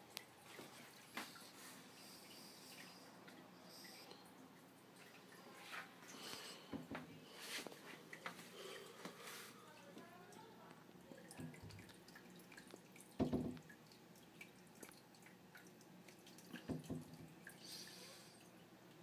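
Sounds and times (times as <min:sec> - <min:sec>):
aquarium water dripping: 0:00.0 - 0:19.0
dull knocks: 0:13.2 - 0:13.6.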